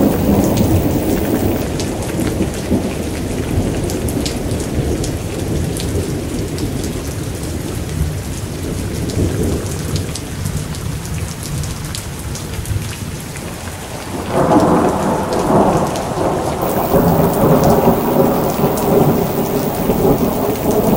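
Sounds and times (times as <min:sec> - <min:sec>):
thunder rumbling: 0:00.0 - 0:01.6, 0:16.6 - 0:20.9
rain falling: 0:00.0 - 0:05.8, 0:13.5 - 0:20.9.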